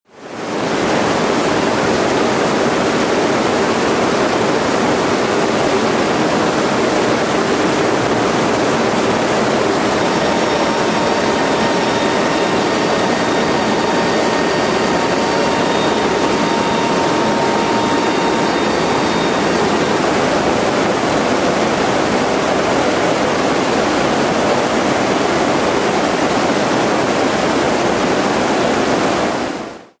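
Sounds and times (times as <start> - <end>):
faint steady whines: 0.2 - 29.8
turboprop engines roaring: 0.7 - 29.2
rushing air: 4.6 - 25.5.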